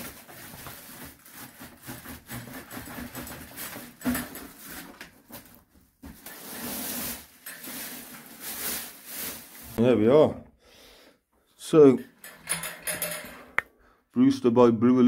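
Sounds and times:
plastic wrapping crinkling: 0:00.0 - 0:02.4, 0:03.1 - 0:09.8.

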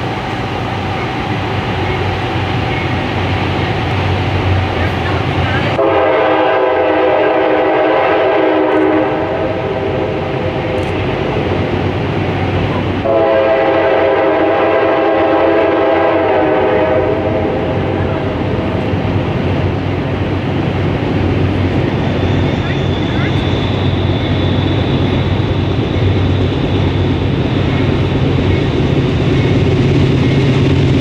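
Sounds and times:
locomotive engine rumble: 0:00.0 - 0:31.0
rail noise: 0:00.0 - 0:31.0
locomotive air horn blasts: 0:05.8 - 0:10.0, 0:13.0 - 0:18.0.

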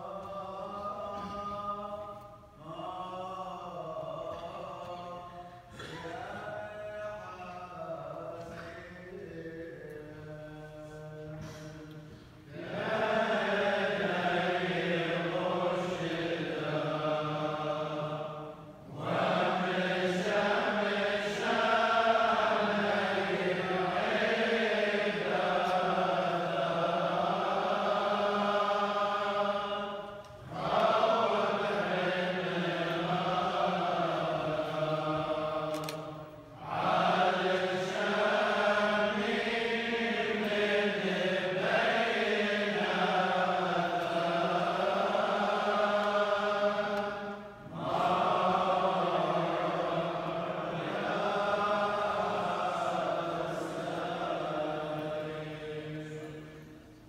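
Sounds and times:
liturgical chanting: 0:00.0 - 0:57.0.

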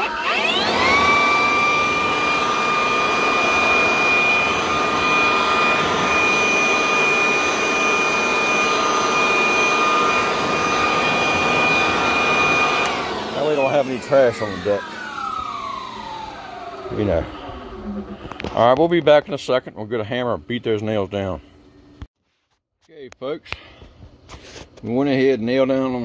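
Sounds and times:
handheld blower whining: 0:00.0 - 0:18.6.

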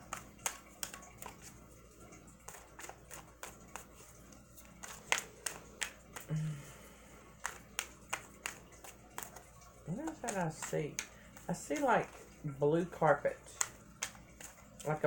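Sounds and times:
cards being shuffled: 0:00.0 - 0:06.4, 0:07.3 - 0:12.4, 0:13.1 - 0:15.0.

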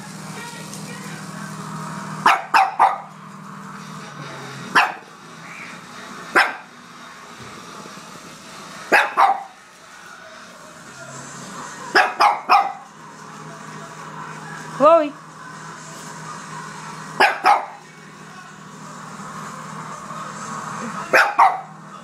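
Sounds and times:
dog barking: 0:02.2 - 0:03.1, 0:04.7 - 0:05.1, 0:06.3 - 0:06.7, 0:08.9 - 0:09.6, 0:11.9 - 0:12.8, 0:17.2 - 0:17.8, 0:21.1 - 0:21.7.

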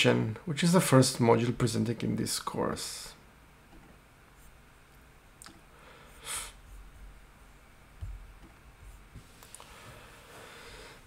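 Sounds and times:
soft low thump: 0:08.0 - 0:09.2.

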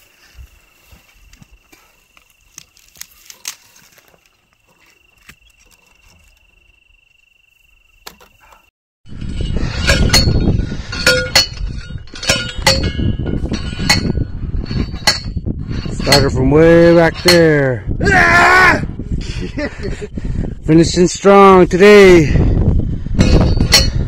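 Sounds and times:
metallic rattles: 0:09.1 - 0:17.7, 0:23.2 - 0:24.0.

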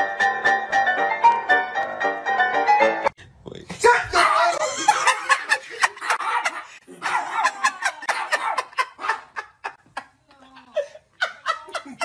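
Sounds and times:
people laughing: 0:04.4 - 0:12.0.

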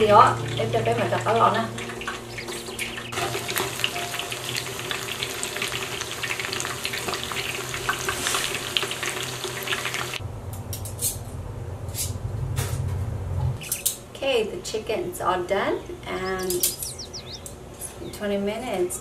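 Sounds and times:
chicken deep-frying in oil: 0:00.0 - 0:10.2, 0:16.4 - 0:17.4
low hum: 0:15.8 - 0:17.6.

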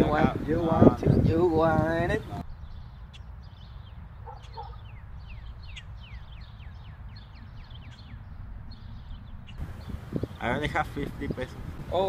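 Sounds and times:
birds chirping: 0:00.0 - 0:12.0
low outdoor rumble: 0:03.8 - 0:12.0.

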